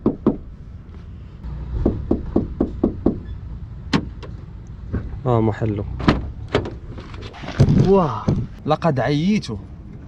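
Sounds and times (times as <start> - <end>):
knuckles knocking on sheet metal: 1.8 - 3.2.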